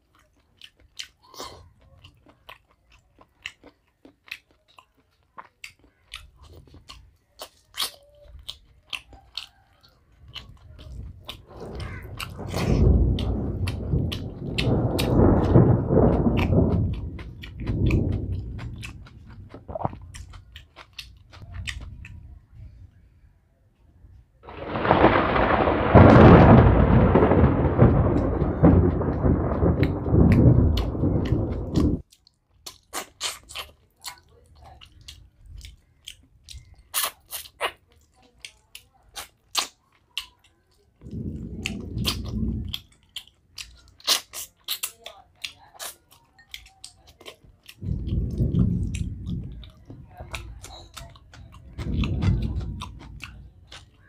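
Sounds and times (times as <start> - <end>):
chewing rice by hand: 0.0 - 22.3, 31.3 - 54.0
thunder rumbling: 10.8 - 20.5, 24.4 - 32.0, 41.0 - 43.0, 47.8 - 54.0.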